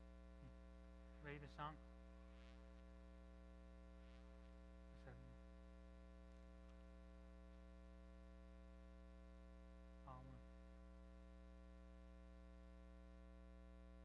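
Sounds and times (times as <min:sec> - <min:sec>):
faint electrical mains hum: 0:00.0 - 0:14.0.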